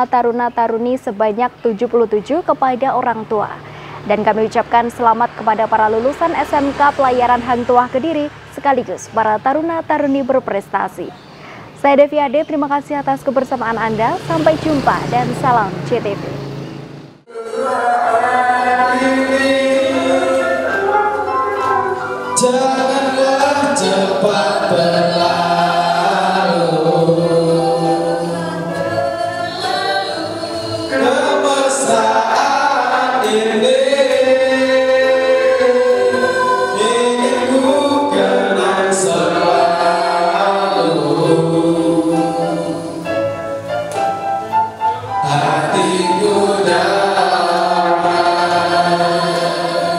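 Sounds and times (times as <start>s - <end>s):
electronic keyboard: 0.0s - 49.9s
group singing into microphones: 17.3s - 43.6s, 45.2s - 49.9s.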